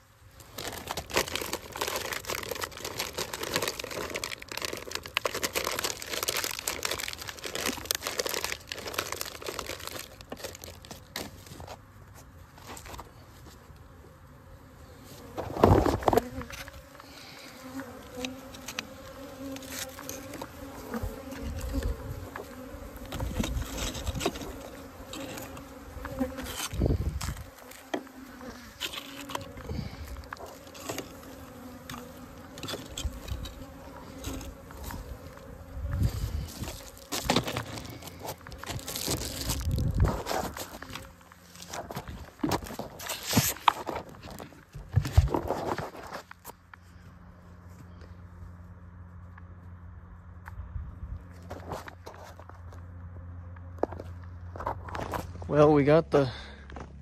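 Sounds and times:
honeybees buzzing: 0:00.1 - 0:46.4
clicks and rustling of hive: 0:00.4 - 0:14.0, 0:14.9 - 0:46.9.

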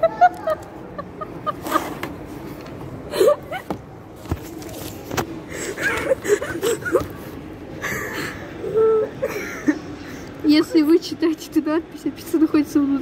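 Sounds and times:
women giggling: 0:00.0 - 0:02.1, 0:03.1 - 0:03.8, 0:05.5 - 0:10.0.

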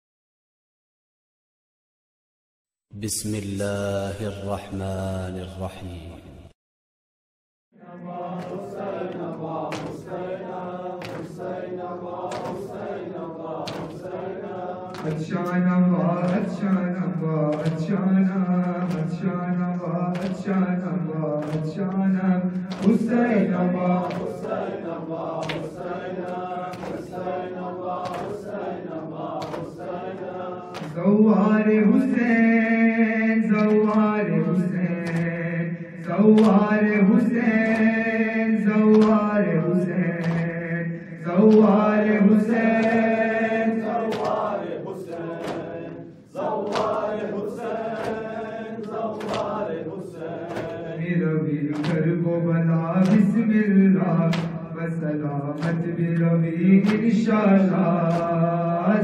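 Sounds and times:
man chanting lament into microphone: 0:02.9 - 0:06.6, 0:15.1 - 0:24.3, 0:31.0 - 0:44.7, 0:50.9 - 0:59.0
rhythmic hand slaps: 0:07.9 - 0:59.0.

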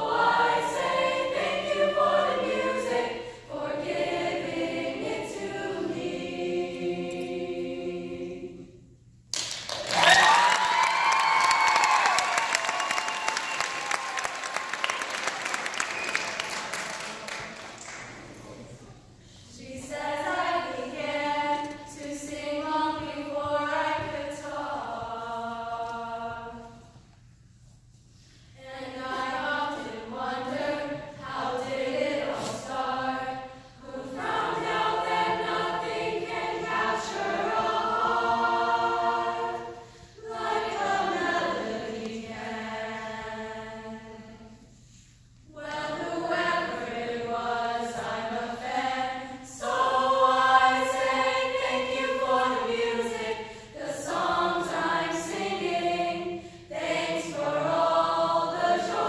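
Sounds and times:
children's choir singing: 0:00.0 - 0:08.9, 0:19.4 - 0:27.0, 0:28.6 - 0:44.8, 0:45.5 - 0:59.0.

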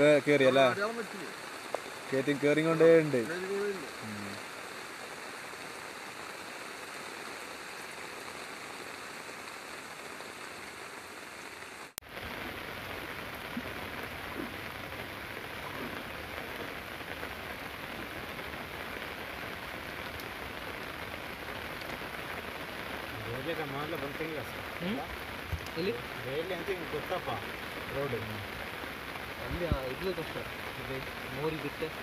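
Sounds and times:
heavy rain hissing: 0:00.0 - 0:32.0.

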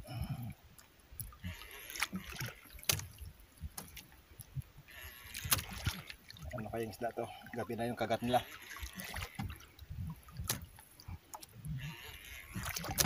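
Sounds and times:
water sloshing against hull: 0:00.0 - 0:13.0.

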